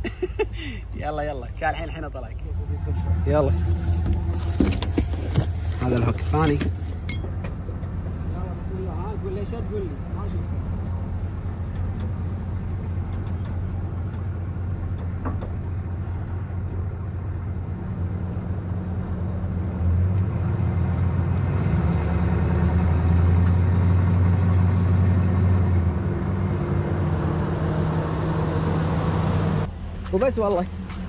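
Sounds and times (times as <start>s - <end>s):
truck engine running: 0.0s - 20.0s.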